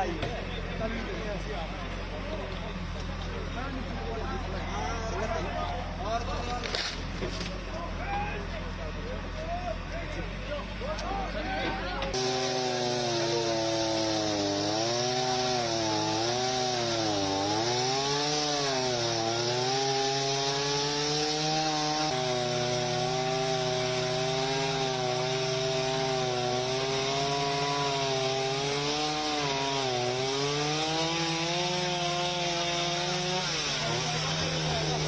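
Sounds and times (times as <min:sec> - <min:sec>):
chainsaw cutting wood: 0:12.1 - 0:35.0.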